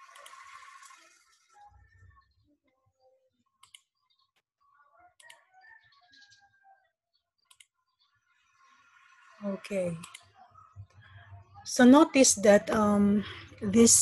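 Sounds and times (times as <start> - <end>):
computer mouse clicks: 3.6 - 3.9, 5.2 - 5.4, 7.5 - 7.7, 10.0 - 10.3.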